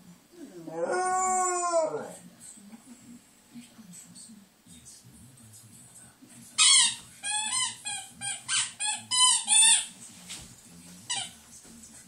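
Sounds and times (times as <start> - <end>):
dog howling: 0.4 - 2.2.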